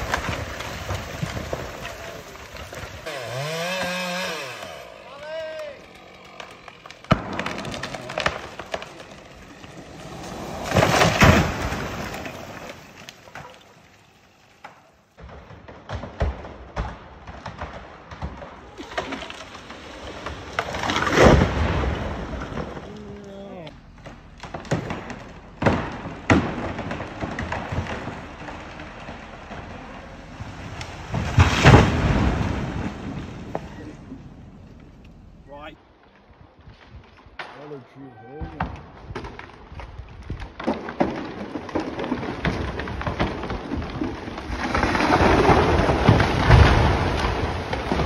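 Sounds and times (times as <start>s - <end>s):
tree crashing to ground: 0.0s - 35.8s, 38.5s - 48.0s
tree wood cracking: 0.0s - 37.8s, 38.4s - 48.0s
road and wind noise: 23.6s - 35.8s.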